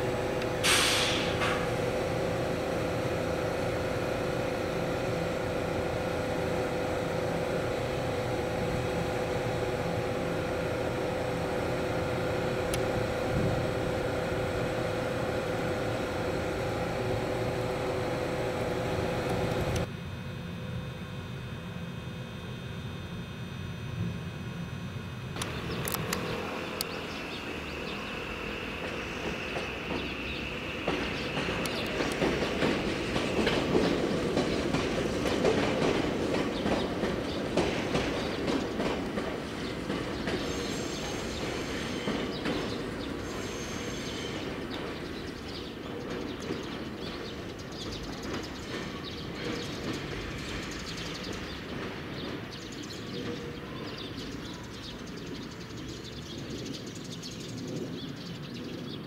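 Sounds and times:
high steady whine: 0:00.0 - 0:45.5
train wheels clacking on rail joints: 0:00.4 - 0:19.9, 0:25.4 - 0:56.9.

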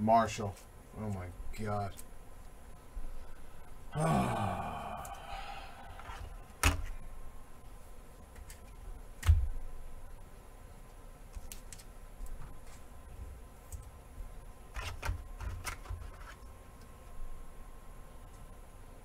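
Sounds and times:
cards clicking and tapping: 0:11.3 - 0:12.8.

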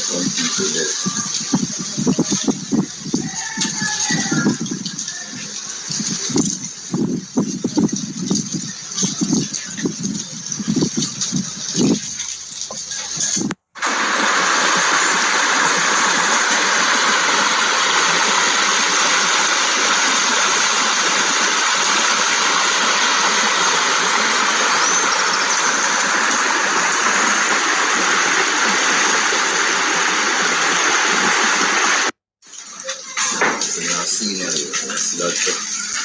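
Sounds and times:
river flowing over rocks: 0:13.8 - 0:32.1.

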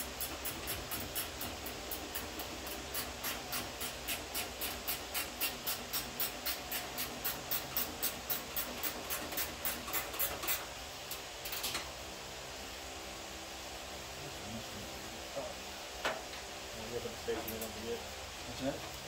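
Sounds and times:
steady low hum: 0:00.0 - 0:19.0
ratchet wrench clicking: 0:00.1 - 0:10.7.

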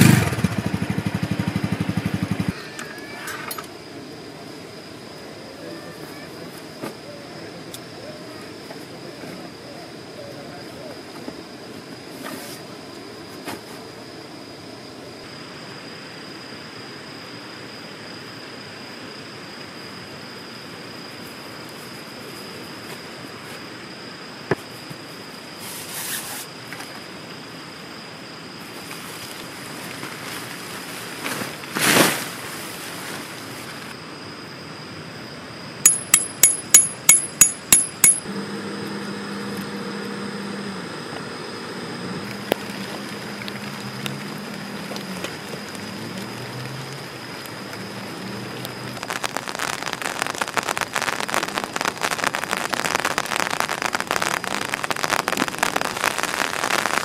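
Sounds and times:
faint hiss: 0:03.0 - 0:35.8, 0:41.0 - 0:57.0
hammer striking metal tent peg: 0:35.9 - 0:38.2.

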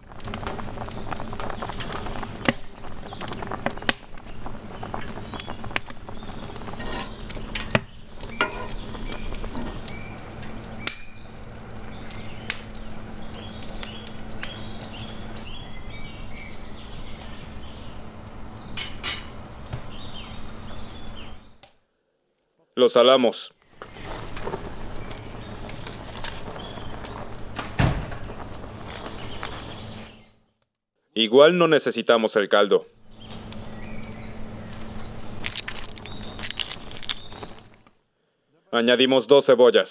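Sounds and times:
birds chirping: 0:00.1 - 0:21.6, 0:23.6 - 0:30.6, 0:33.0 - 0:37.8.

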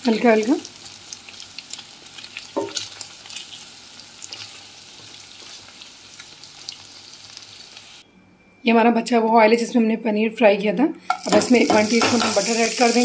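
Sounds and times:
cheese sizzling in hot oil: 0:00.0 - 0:08.0, 0:11.2 - 0:13.0.

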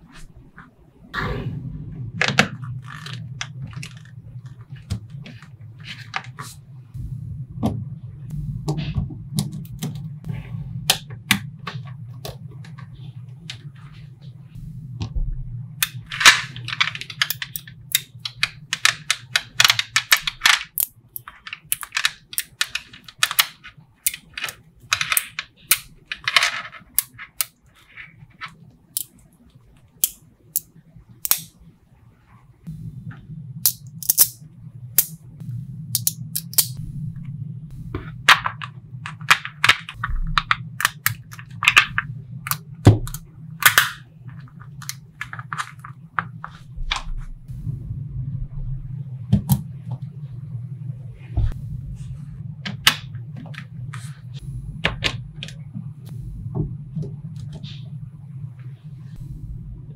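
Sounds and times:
low steady hum: 0:00.0 - 0:59.9.

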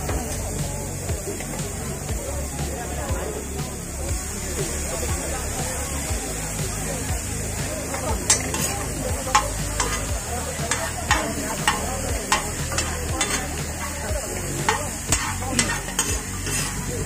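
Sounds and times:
vegetables sizzling: 0:00.0 - 0:17.0
ladle scraping iron griddle: 0:07.8 - 0:17.0.

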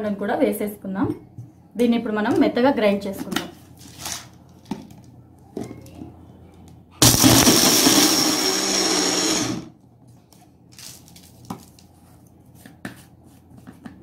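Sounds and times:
mixer grinder motor whine: 0:07.0 - 0:09.7.

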